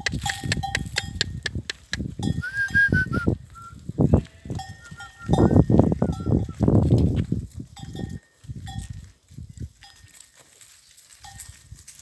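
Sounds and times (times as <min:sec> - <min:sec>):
short held whistle: 0:02.4 - 0:03.8, 0:04.9 - 0:05.5
goats and sheep bleating: 0:04.0 - 0:06.5.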